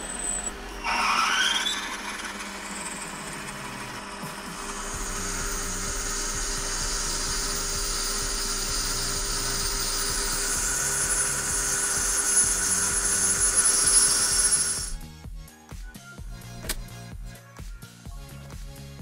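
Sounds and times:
hissing metal cutting noise: 0.0s - 15.0s
lathe motor hum: 0.0s - 15.0s.

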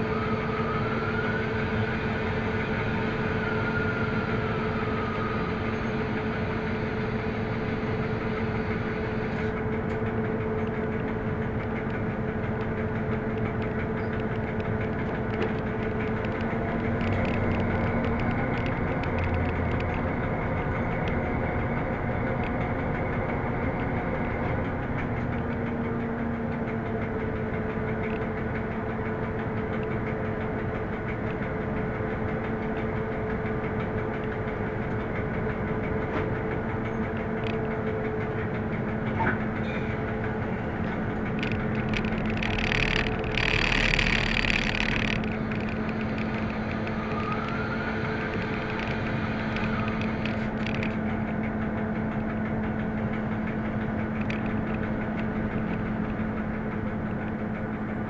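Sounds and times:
locomotive diesel engine: 0.0s - 58.0s
rumble of moving train: 0.0s - 58.0s
faint whine: 40.7s - 51.5s.

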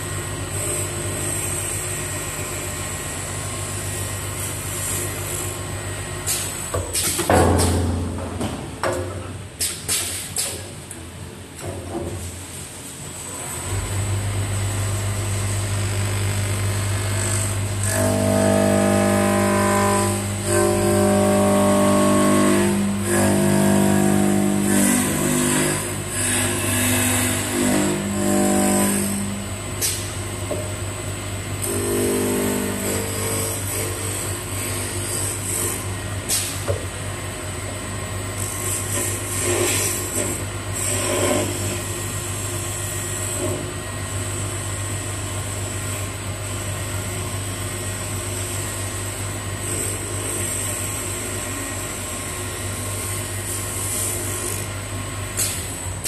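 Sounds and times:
cutter buzzing into wood: 17.0s - 29.4s.

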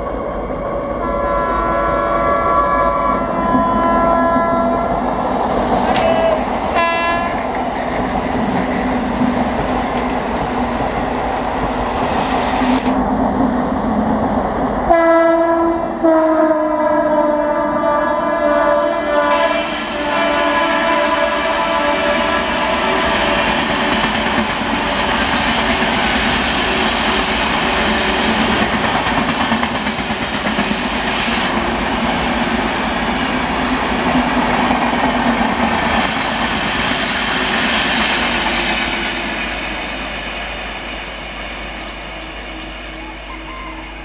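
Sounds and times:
train wheels clattering on rails: 3.0s - 13.0s, 22.0s - 41.4s.

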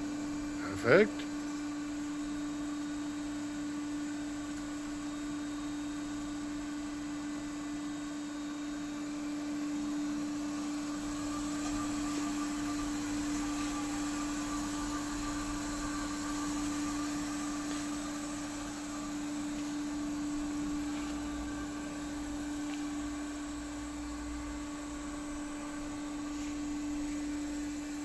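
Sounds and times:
band saw machine hum: 9.0s - 28.0s.

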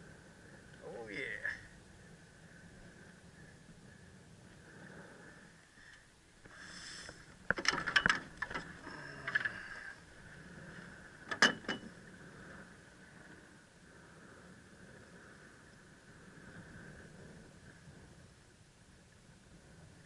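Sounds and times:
fishing gear clicking and knocking: 7.4s - 9.8s.

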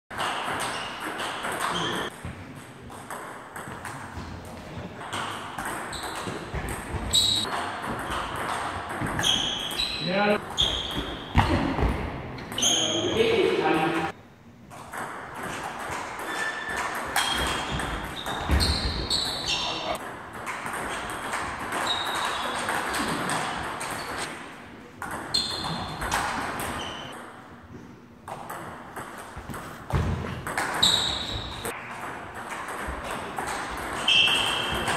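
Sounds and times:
table tennis ball hits: 0.1s - 12.8s, 14.7s - 27.2s, 28.3s - 34.9s
table tennis ball knocking: 5.0s - 9.8s
short high squeaks: 9.2s - 11.3s, 12.5s - 13.2s, 16.3s - 20.0s, 26.7s - 27.1s, 30.8s - 31.7s, 34.0s - 34.9s.

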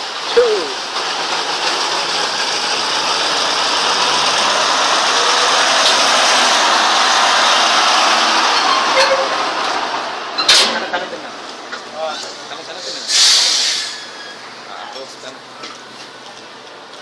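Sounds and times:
diesel truck engine passing: 0.0s - 11.5s.

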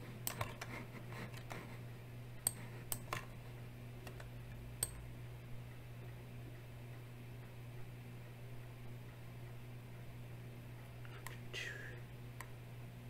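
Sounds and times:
faint low hum: 0.0s - 13.0s
computer mouse clicking: 0.2s - 0.7s.

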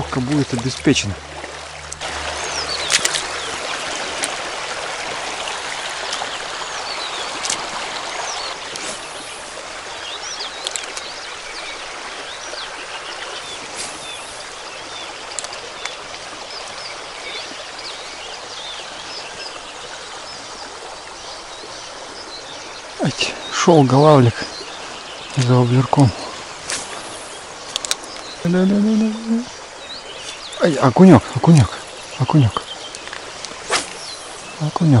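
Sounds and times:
birds chirping: 0.0s - 35.0s
river water running: 0.0s - 35.0s
sharp clicks: 10.6s - 11.1s, 15.3s - 16.0s, 27.7s - 28.2s.

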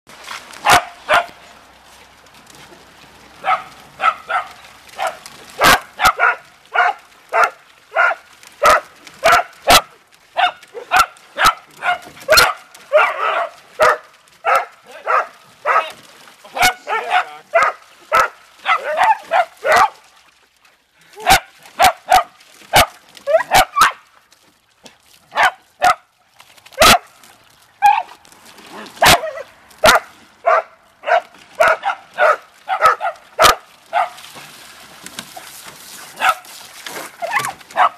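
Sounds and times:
dogs barking: 0.6s - 1.4s, 3.4s - 20.0s, 21.2s - 24.0s, 25.3s - 26.0s, 26.8s - 27.1s, 29.0s - 34.2s, 36.2s - 36.4s, 37.2s - 37.9s
hose water spraying: 26.8s - 37.9s.

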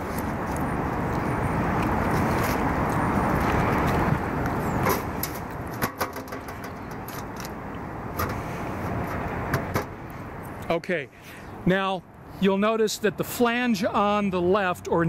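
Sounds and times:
metal knocks and taps: 4.9s - 7.5s, 9.1s - 10.0s.

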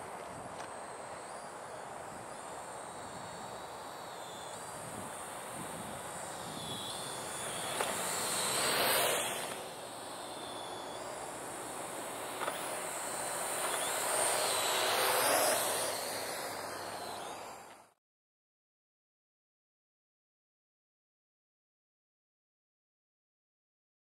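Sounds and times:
drone propellers whirring: 0.0s - 18.0s.

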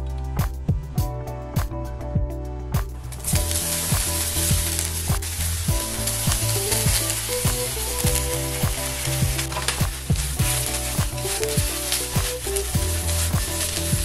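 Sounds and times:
tofu sizzling in hot oil: 3.2s - 14.0s.

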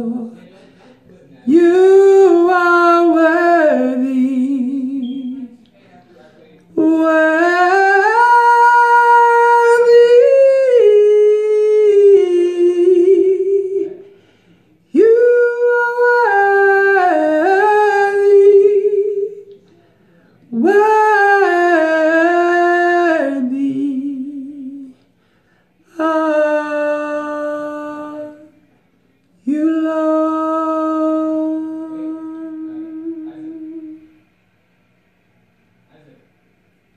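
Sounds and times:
man singing unaccompanied: 0.0s - 0.5s, 1.4s - 5.6s, 14.9s - 19.4s, 20.5s - 25.0s.

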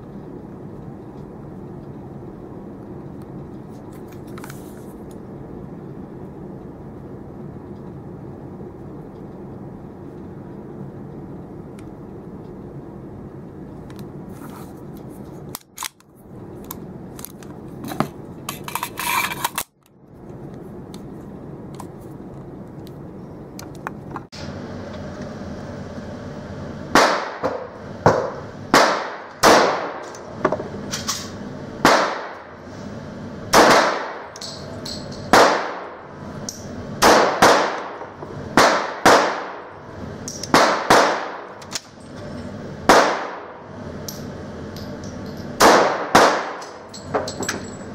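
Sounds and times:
low hum: 0.0s - 47.9s
pistol shots ringing indoors: 26.9s - 30.1s, 31.8s - 32.4s, 33.5s - 36.0s, 36.6s - 38.0s, 38.6s - 39.7s, 40.3s - 41.9s, 42.9s - 43.6s, 45.6s - 47.0s.

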